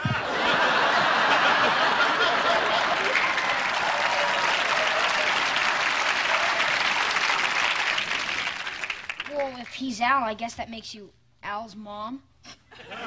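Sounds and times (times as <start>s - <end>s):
studio audience applauding: 0.0s - 9.8s.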